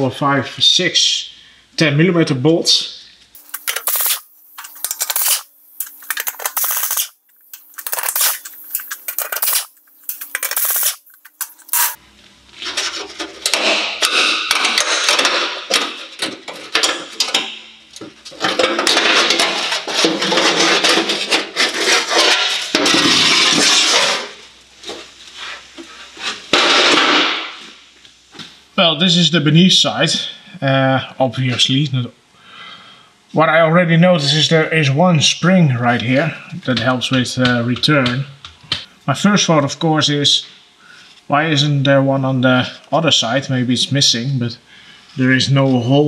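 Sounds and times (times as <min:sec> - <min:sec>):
ratchet undoing bolts: 0:03.4 - 0:12.0
sheet metal scraping and rattling: 0:18.3 - 0:24.3.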